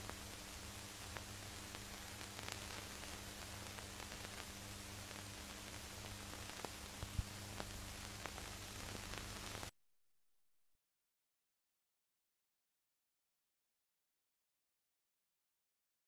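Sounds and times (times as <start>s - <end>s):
faint steady hum: 0.0s - 9.7s
film soundtrack hiss and crackle: 0.0s - 9.7s.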